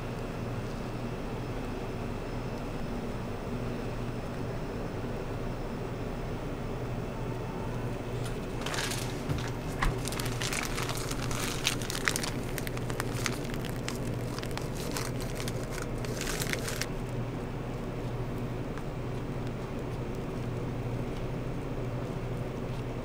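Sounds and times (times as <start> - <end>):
steady low hum: 0.0 - 23.0
piping bag crinkling: 8.0 - 23.0.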